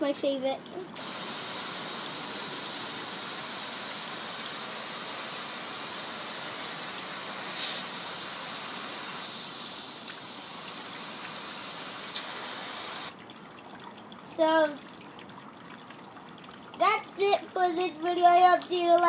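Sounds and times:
garden hose spraying water: 0.4s - 13.2s.

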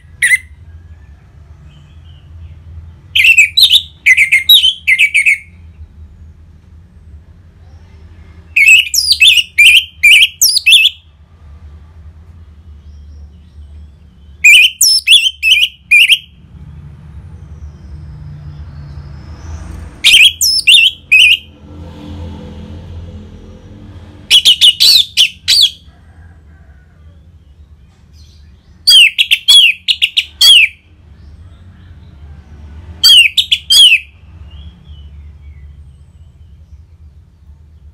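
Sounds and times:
thrush singing whistled notes: 3.1s - 5.6s, 8.6s - 11.0s, 14.3s - 16.4s, 17.8s - 21.5s, 24.3s - 25.9s, 28.8s - 30.8s, 33.0s - 35.7s.

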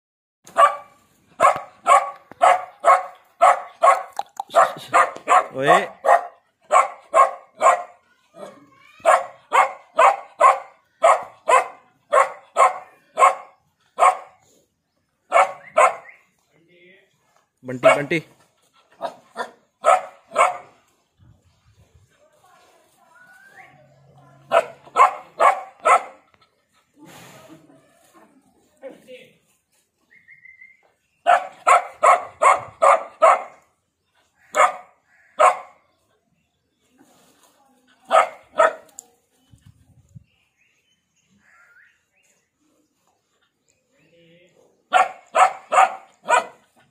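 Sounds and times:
dog barking: 0.5s - 8.0s, 9.0s - 14.4s, 15.3s - 16.1s, 17.8s - 18.2s, 19.0s - 20.8s, 24.5s - 26.3s, 31.2s - 33.7s, 34.5s - 35.8s, 38.1s - 38.9s, 44.9s - 46.7s.

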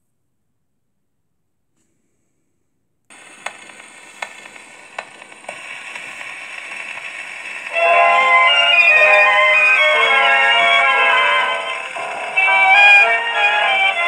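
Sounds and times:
record clicks: 3.1s - 14.0s
record surface hiss: 3.1s - 14.0s.

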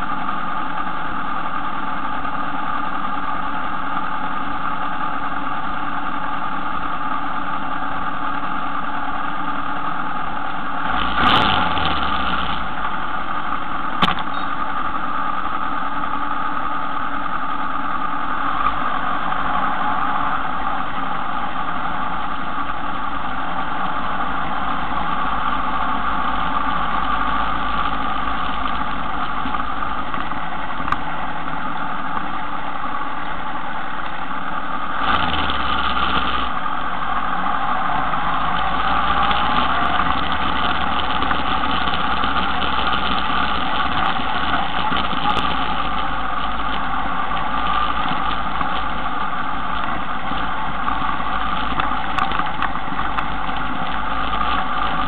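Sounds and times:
motor humming: 9.6s - 55.0s
thump with falling low tone: 14.0s - 14.5s.

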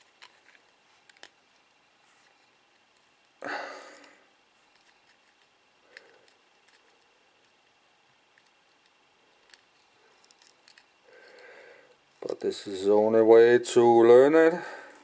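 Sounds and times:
small handling clicks: 8.3s - 11.4s.

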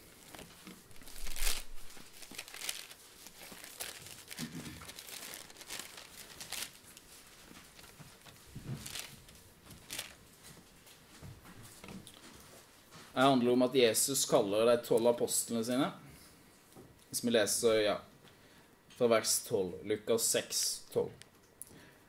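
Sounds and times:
book pages rustling: 0.0s - 11.1s.

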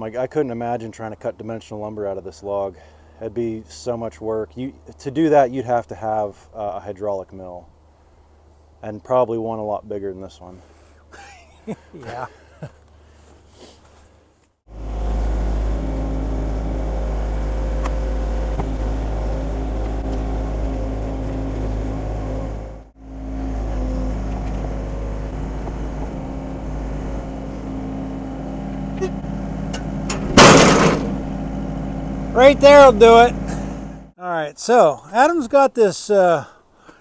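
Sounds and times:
excavator diesel engine running: 14.7s - 34.1s
short loud burst of noise: 30.3s - 31.2s.

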